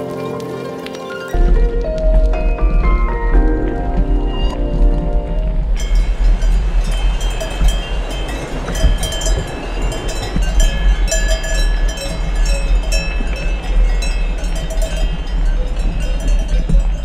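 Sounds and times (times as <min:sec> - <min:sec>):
riding noise: 0:00.0 - 0:17.0
low rumble of wind: 0:01.3 - 0:17.0
cowbells ringing: 0:05.8 - 0:17.0.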